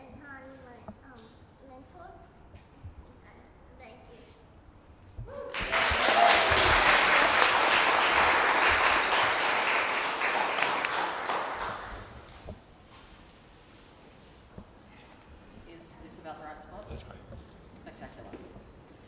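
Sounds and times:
audience applauding: 5.5 - 12.4.

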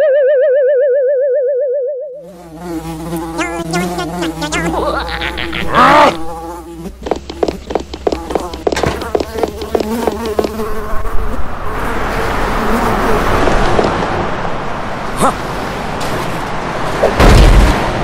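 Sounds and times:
cartoon fly buzzing: 2.2 - 14.0.

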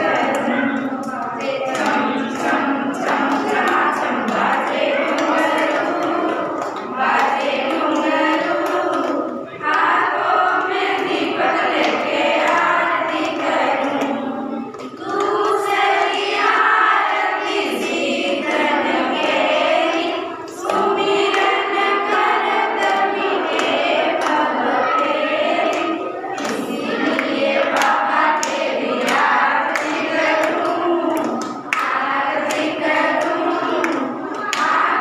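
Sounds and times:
hand clapping: 0.0 - 35.0
women and girls singing: 0.0 - 35.0.

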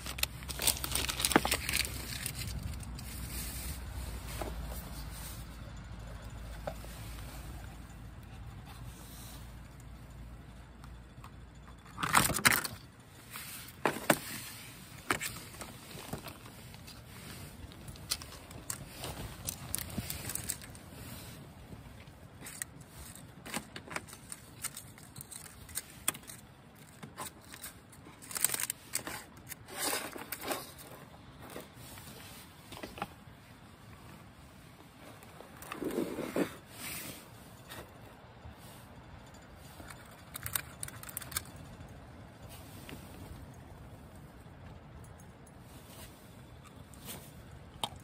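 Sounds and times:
chocolate box packaging rustling: 0.0 - 5.5, 11.8 - 33.3, 39.7 - 41.8.

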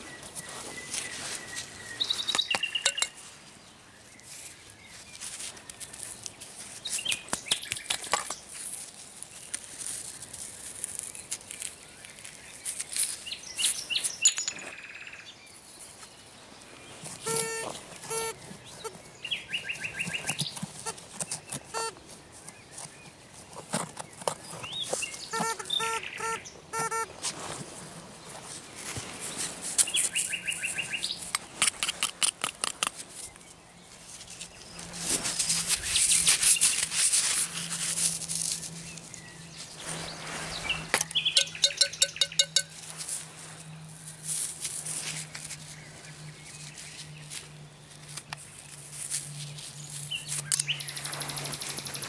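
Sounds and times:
loud scraping rustling noise: 0.0 - 2.4, 26.8 - 31.6, 33.9 - 41.6, 42.3 - 52.0
nightingale singing: 0.0 - 5.8, 11.1 - 15.6, 17.0 - 20.6, 24.2 - 27.1, 29.8 - 31.3, 38.6 - 43.0, 50.0 - 52.0.

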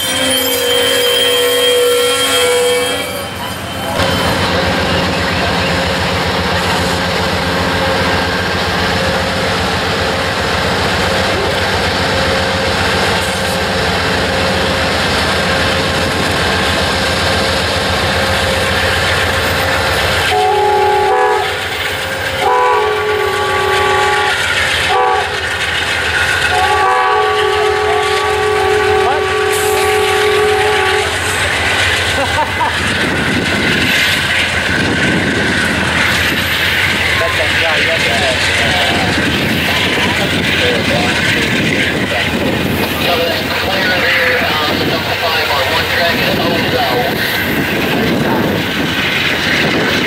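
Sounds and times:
locomotive horn blasts: 0.0 - 3.3, 20.2 - 21.6, 22.4 - 25.4, 26.5 - 31.3
diesel locomotive engines droning: 0.0 - 50.0.

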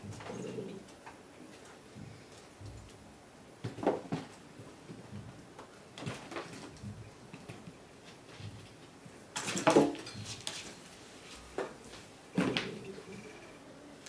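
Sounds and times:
buckles clattering on plastic: 9.4 - 10.4.

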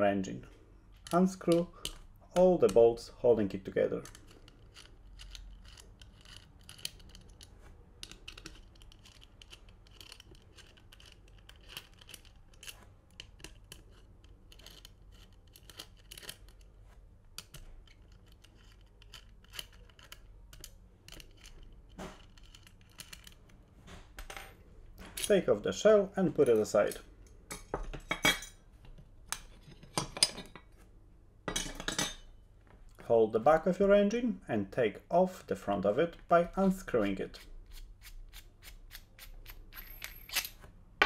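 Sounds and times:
metal clicks and scrapes: 0.9 - 2.8, 3.5 - 16.8, 17.4 - 23.6.

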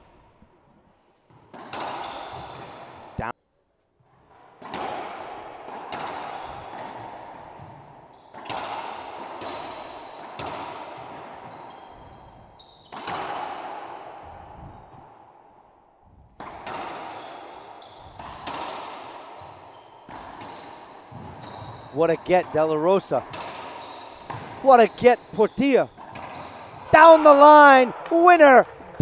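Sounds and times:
racquetball cracks echoing: 1.5 - 3.1, 4.6 - 11.4, 12.9 - 14.1, 16.4 - 21.4, 23.3 - 24.6, 25.9 - 29.0.

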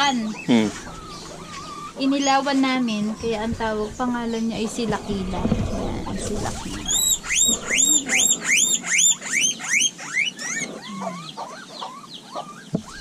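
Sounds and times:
guinea pig squealing: 0.0 - 13.0.

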